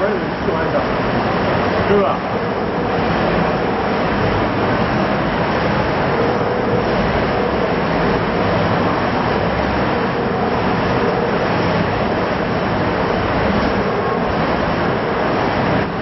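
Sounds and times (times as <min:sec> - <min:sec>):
amusement ride mechanical running: 0:00.0 - 0:16.0.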